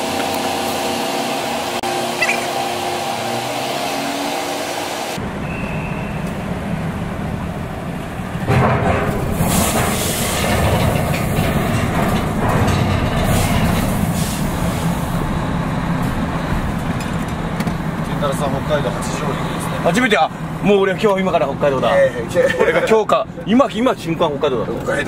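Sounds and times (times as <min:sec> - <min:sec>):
diesel engine running low: 0:00.0 - 0:25.0
tyres rumbling over steel ramp: 0:06.2 - 0:21.9.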